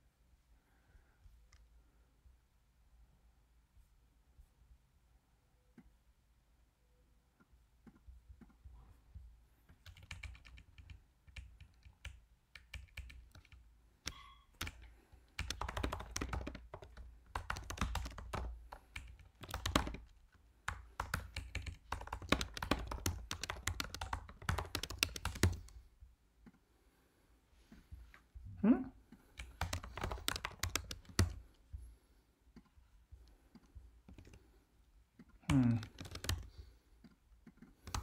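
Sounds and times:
typing on a computer keyboard: 9.7 - 25.8, 29.3 - 31.4, 33.6 - 34.4, 35.2 - 36.6, 37.4 - 38.0.

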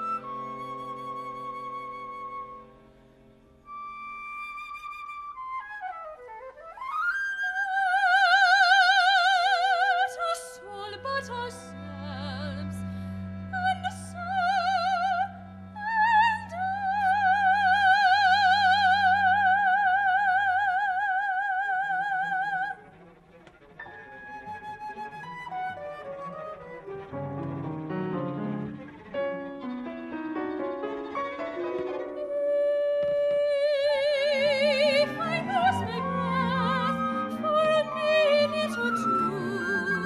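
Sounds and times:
soprano singing operatic vibrato: 7.2 - 22.8, 32.2 - 40.0.

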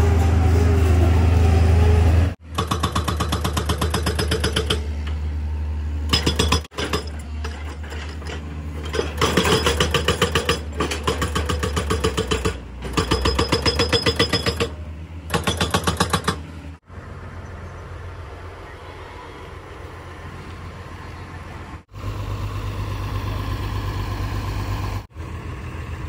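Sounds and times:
hydraulic breaker hammering ground: 2.4 - 5.2, 6.1 - 16.5
excavator diesel engine running: 3.8 - 26.0.

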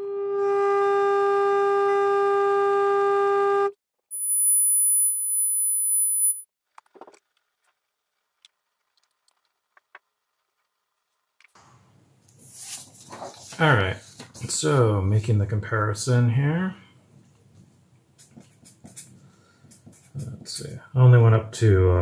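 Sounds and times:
high-pitched test tone: 4.1 - 6.4
faint clicks and taps: 6.7 - 11.6, 17.2 - 20.6.

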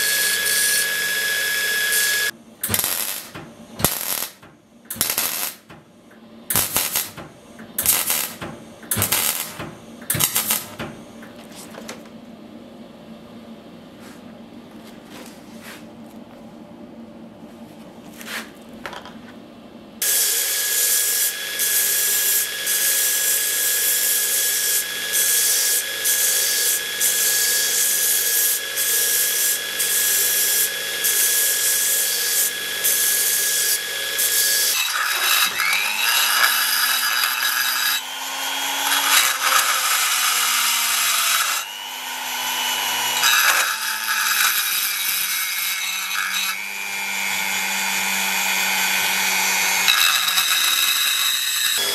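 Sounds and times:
belt grinder grinding metal: 0.0 - 5.6, 7.8 - 10.8, 20.0 - 51.9.

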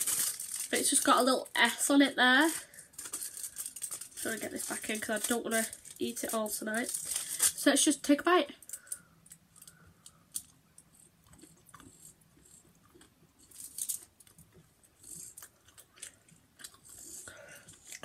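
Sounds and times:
foil wrapper crinkling: 0.0 - 8.0, 13.4 - 14.4
chewing chocolate: 9.6 - 18.0.

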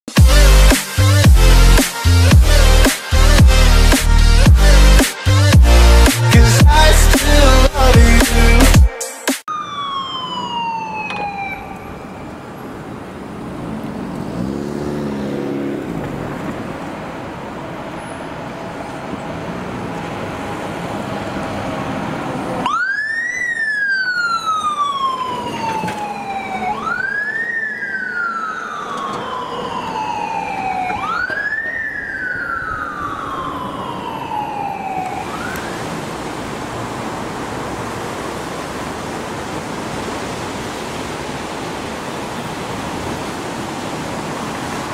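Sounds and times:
fire engine siren: 9.5 - 13.3, 17.6 - 44.9
traffic noise: 9.5 - 44.9.

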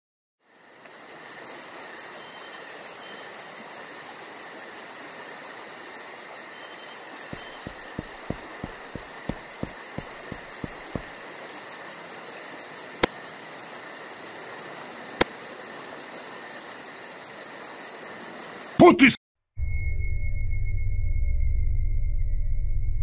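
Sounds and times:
insect chirring: 0.4 - 18.8
dull low thumps: 7.3 - 11.1.

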